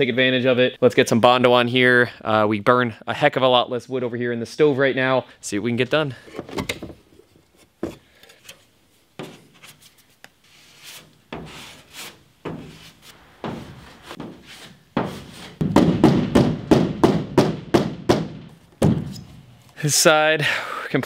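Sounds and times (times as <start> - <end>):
body filler scraping on metal: 10.5 - 15.6.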